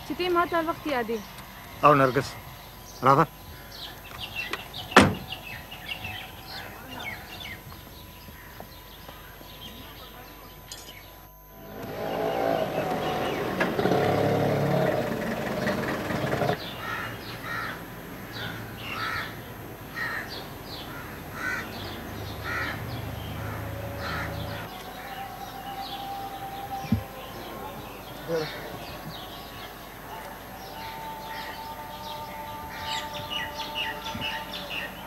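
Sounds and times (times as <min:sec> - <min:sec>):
loud multi-pitch drone: 0:00.0 - 0:16.7, 0:22.4 - 0:35.0
crows cawing: 0:03.1 - 0:04.1, 0:08.3 - 0:09.4, 0:16.6 - 0:25.5.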